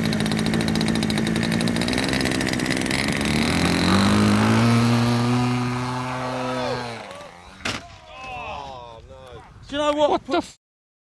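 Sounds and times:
model airplane engine running: 0:00.0 - 0:07.6.

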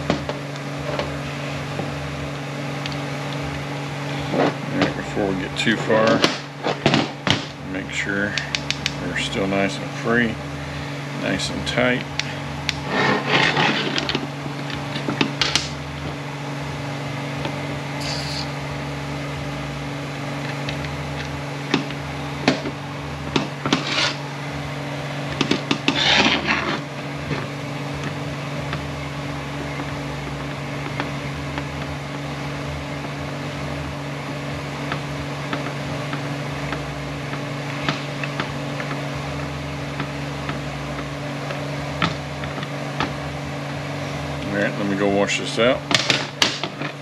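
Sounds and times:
steady hum: 0:00.0 - 0:47.0
reamer scraping in metal bore: 0:18.0 - 0:18.6.

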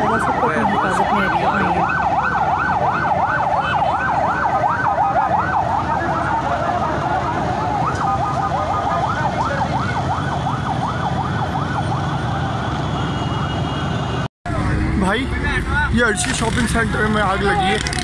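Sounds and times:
siren yelping: 0:00.0 - 0:13.7
second siren: 0:00.0 - 0:14.3.

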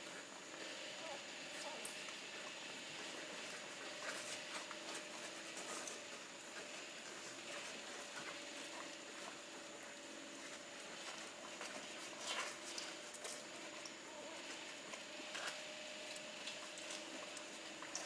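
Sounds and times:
puppies suckling: 0:00.0 - 0:18.0.

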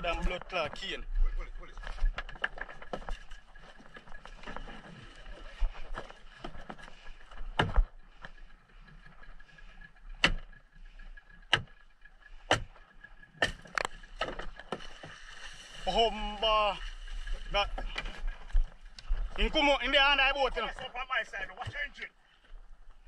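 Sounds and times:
boat engine running: 0:00.0 - 0:23.0
sharp knocks: 0:12.5 - 0:12.8.

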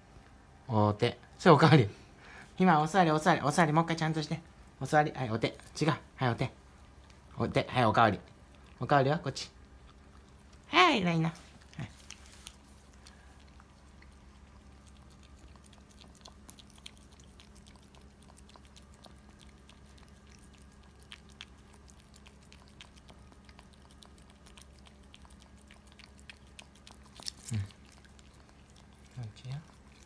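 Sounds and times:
dog chewing treat: 0:06.8 - 0:30.0.

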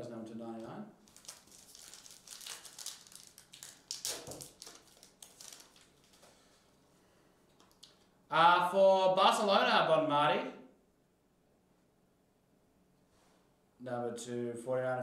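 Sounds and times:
foil wrapper crinkling: 0:00.5 - 0:06.7.

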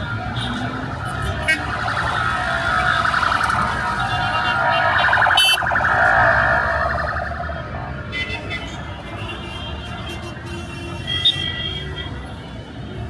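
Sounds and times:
street traffic rumble: 0:00.0 - 0:13.0
electronic siren warbling: 0:01.3 - 0:08.1.

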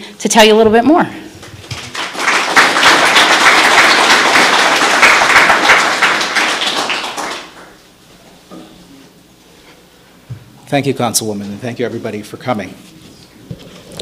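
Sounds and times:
audience applauding: 0:01.4 - 0:07.8.

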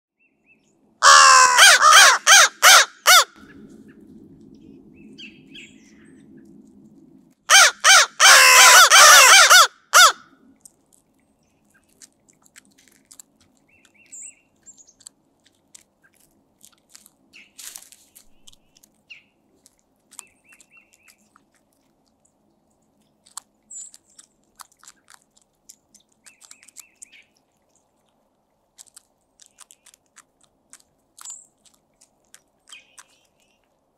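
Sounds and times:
crows cawing: 0:01.0 - 0:03.4, 0:07.5 - 0:10.2
crows pecking at food: 0:01.0 - 0:04.8, 0:06.2 - 0:33.9
low steady hum: 0:03.4 - 0:07.6.

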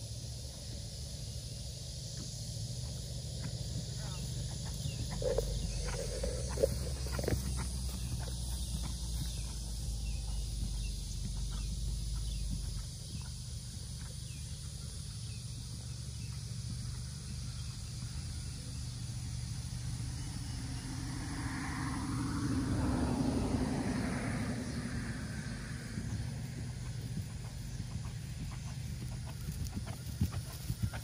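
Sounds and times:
steady high hiss: 0:00.0 - 0:08.6
wind rumbling on microphone: 0:04.6 - 0:11.7.

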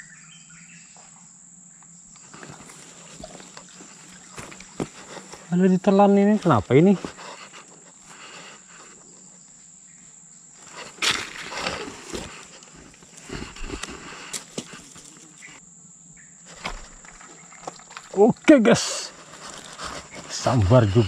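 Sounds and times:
high-pitched insect drone: 0:00.0 - 0:21.0
rustling: 0:02.2 - 0:05.6, 0:10.6 - 0:15.6, 0:19.1 - 0:21.0.

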